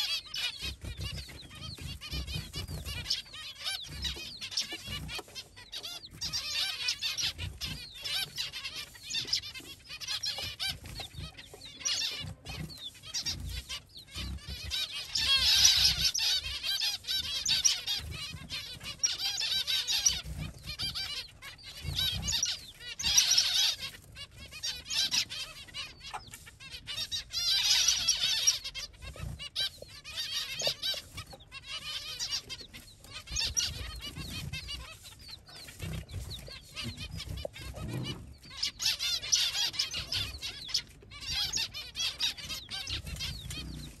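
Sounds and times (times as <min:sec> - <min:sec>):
baby chicks peeping: 0:00.0 - 0:44.0.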